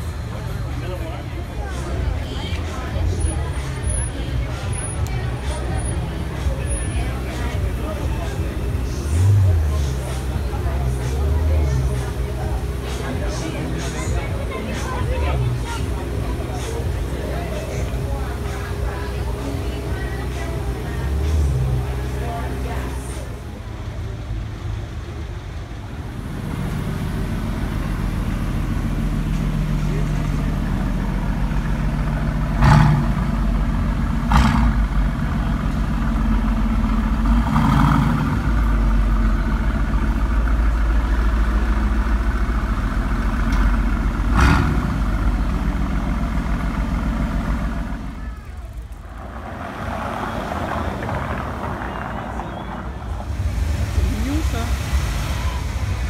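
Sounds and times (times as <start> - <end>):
cars in slow traffic: 0.0 - 56.0
low engine rumble: 0.0 - 56.0
sharp exhaust cracks: 26.2 - 56.0.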